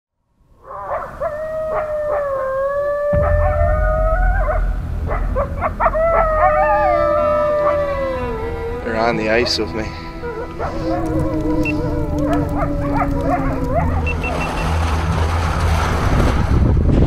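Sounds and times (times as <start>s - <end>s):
dog howling: 0.6s - 14.6s
deep low rumble: 3.0s - 8.9s, 10.0s - 17.0s.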